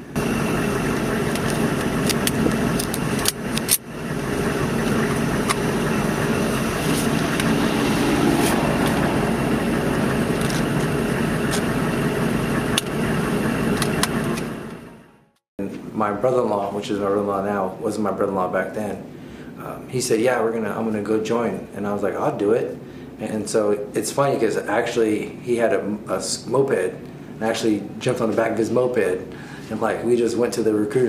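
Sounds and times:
vehicle engine idling: 0.0 - 15.2
clicks and knocks of gear: 1.3 - 3.8.

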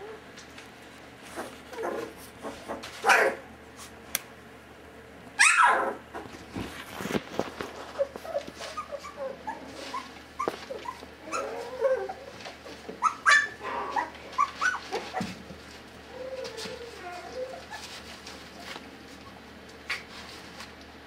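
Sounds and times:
puppies small barks: 1.4 - 3.5, 5.4 - 6.3, 7.9 - 15.4
puppies squeaky cries: 5.4 - 6.0, 8.0 - 12.4, 13.0 - 15.3, 16.1 - 18.0.

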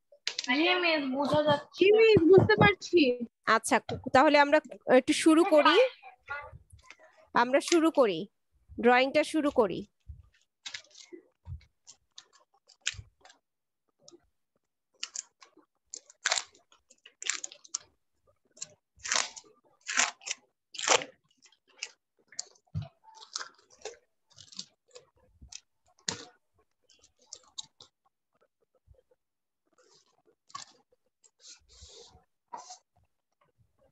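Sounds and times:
soft clicks and crackles: 0.1 - 0.6, 9.9 - 33.9
low thumps: 1.4 - 3.0.

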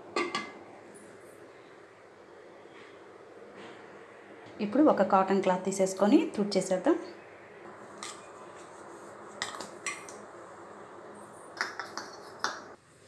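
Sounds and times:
faint background noise: 0.0 - 13.0
metal dishes clinking: 0.2 - 0.6, 9.4 - 10.2.

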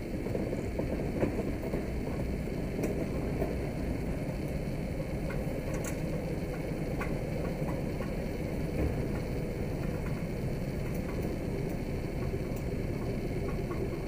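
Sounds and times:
diesel locomotive engine rumbling: 0.0 - 14.0
faint ticks: 5.2 - 14.0.

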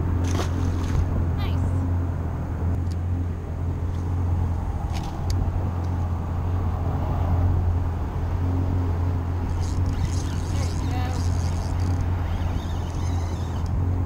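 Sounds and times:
outboard motor idling: 8.4 - 13.8.

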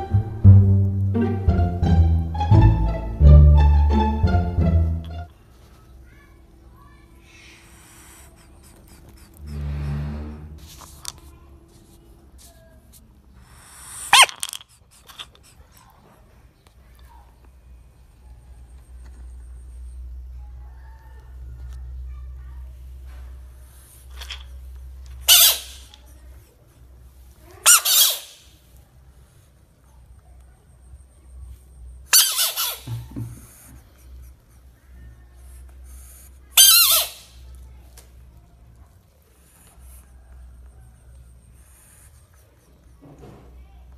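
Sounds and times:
frog high-pitched squeal: 25.3 - 25.8, 27.6 - 28.4, 32.1 - 32.9, 36.6 - 37.4.

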